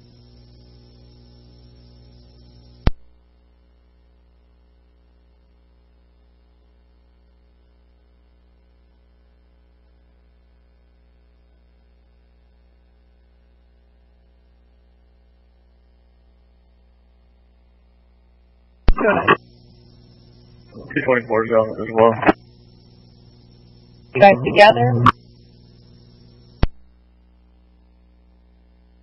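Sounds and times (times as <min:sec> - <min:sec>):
electrical mains hum: 0:00.0 - 0:29.0
sharp click: 0:02.8 - 0:03.1, 0:26.6 - 0:26.8.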